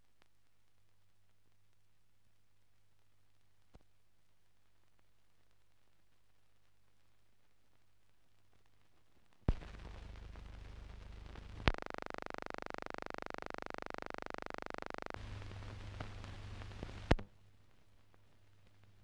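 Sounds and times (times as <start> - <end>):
faint hiss: 0.0 - 19.0
sharp pops: 9.5 - 10.0
low hum: 9.5 - 17.2
harsh buzz: 11.5 - 15.6.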